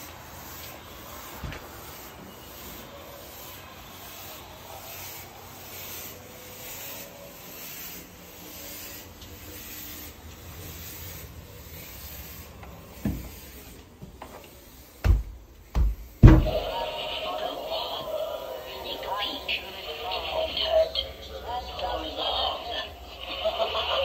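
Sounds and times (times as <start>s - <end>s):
thump: 15.0s - 16.5s.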